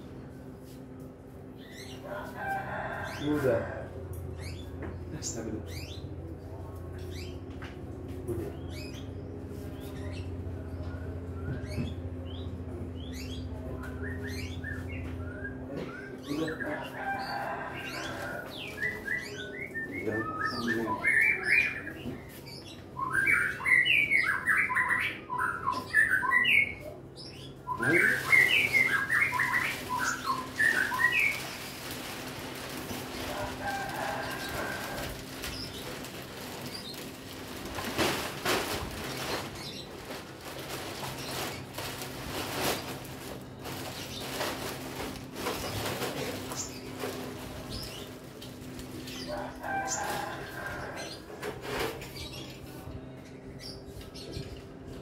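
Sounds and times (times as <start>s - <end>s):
steady low hum: 0.0s - 23.0s
birds chirping: 0.2s - 55.0s
rustling: 28.2s - 49.2s.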